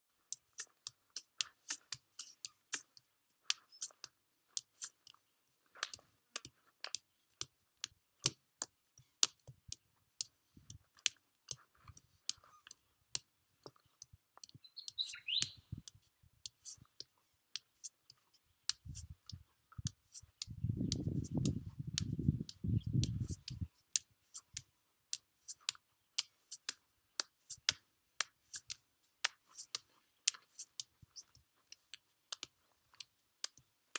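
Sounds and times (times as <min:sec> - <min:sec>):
bird chirping: 0:13.7 - 0:15.8, 0:17.7 - 0:23.8.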